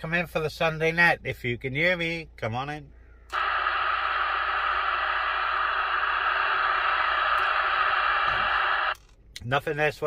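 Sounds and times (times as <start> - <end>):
radio static hiss: 3.3 - 9.0.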